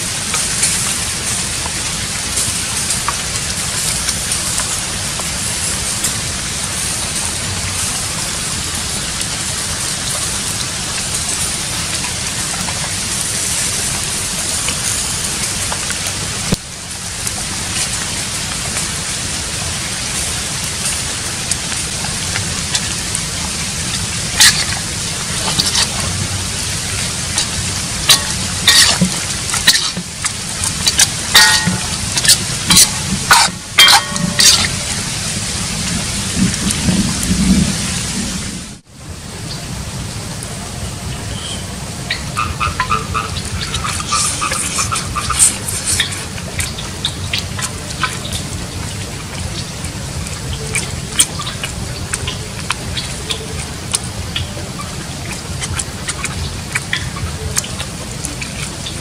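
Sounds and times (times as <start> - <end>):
steady hiss: 0.0 - 59.0
metal ladle scraping a wok: 27.3 - 35.2
sharp metal clanks: 28.1 - 30.0, 30.9 - 34.9.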